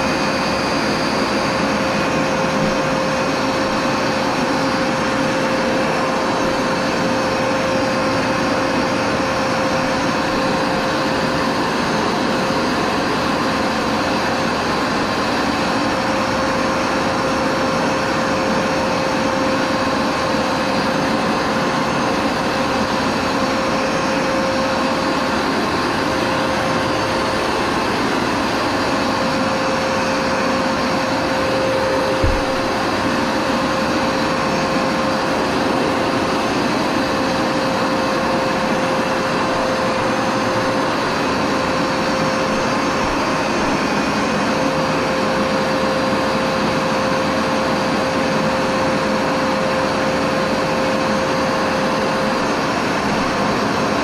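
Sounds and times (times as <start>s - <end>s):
carpet washer motor whining: 0.0s - 54.0s
short knock: 32.2s - 32.6s.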